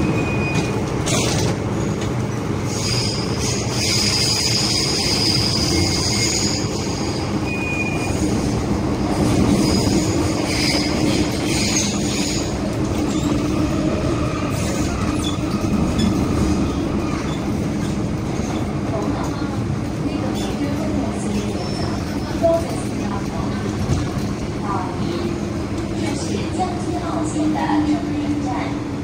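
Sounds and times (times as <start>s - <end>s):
train wheels rumbling on track: 0.0s - 29.0s
high-pitched wheel squeal: 2.7s - 8.2s.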